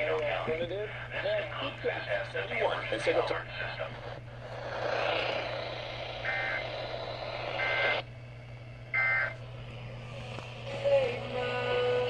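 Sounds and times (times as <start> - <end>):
radio static hiss: 0.0 - 8.1.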